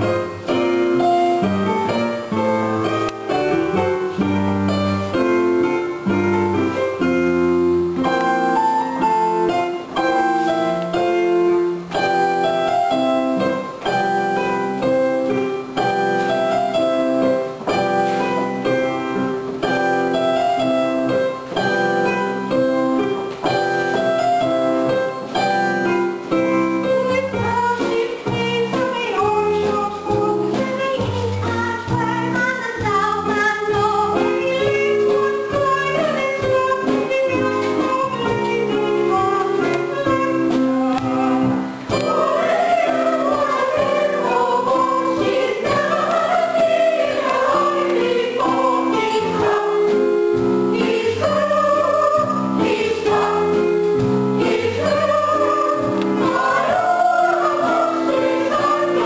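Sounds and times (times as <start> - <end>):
piano accompaniment: 0.0 - 59.0
voices singing: 26.8 - 59.0.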